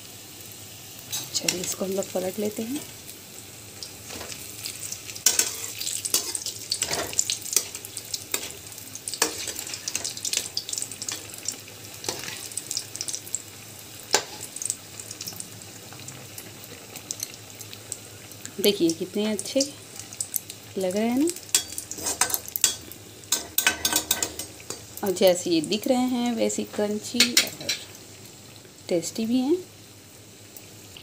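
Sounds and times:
fritters sizzling in hot oil: 0.0s - 31.0s.

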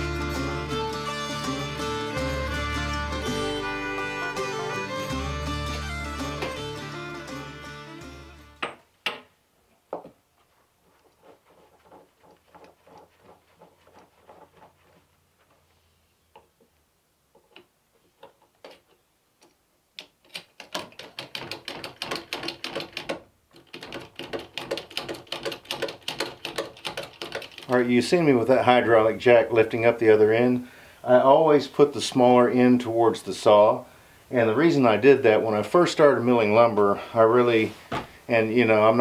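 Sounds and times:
sharp knocks: 8.6s - 9.3s.

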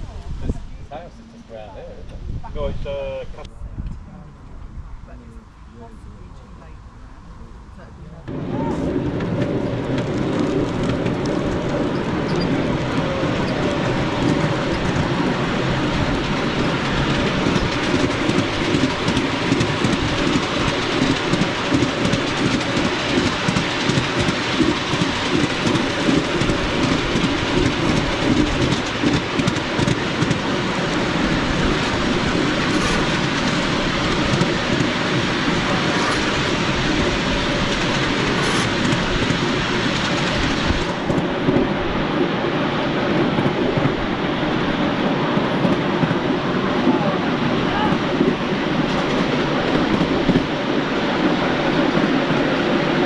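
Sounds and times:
miniature train running on track: 7.9s - 41.9s, 45.4s - 53.0s.

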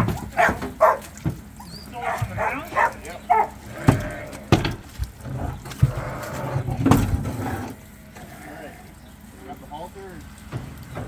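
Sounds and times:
rams bleating: 1.8s - 4.8s, 5.4s - 6.8s, 8.1s - 9.2s
knocks on wooden ramp: 3.8s - 6.0s.

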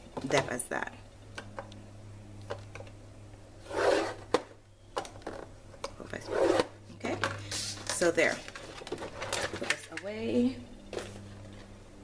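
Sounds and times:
bone folder scraping paper: 3.6s - 4.2s.

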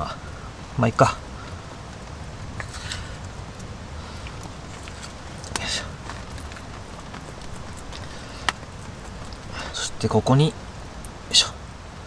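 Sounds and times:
low background noise: 0.0s - 12.0s.

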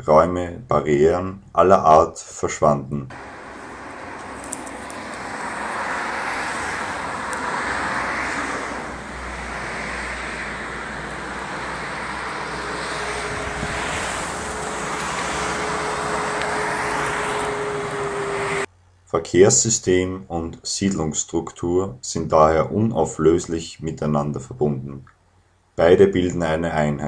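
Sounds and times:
passenger jet flying overhead: 3.1s - 18.7s
road traffic passing: 3.1s - 18.7s
steady hum: 3.1s - 18.8s.

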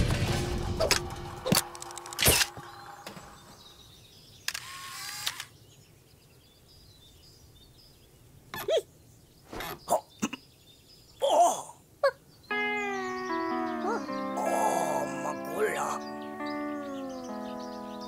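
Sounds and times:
faint bird chirps: 2.3s - 18.0s
sharp clicks: 4.4s - 5.6s
pair of tones: 12.5s - 17.9s.

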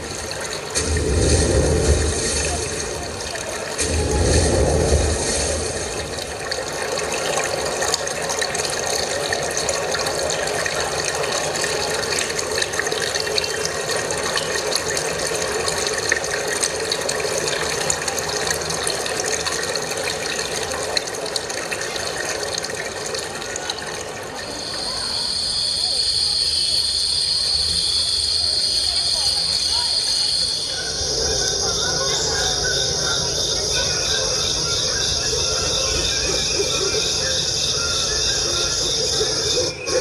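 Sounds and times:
low rumble: 0.0s - 8.3s
rushing noise with crackles: 0.0s - 24.8s.

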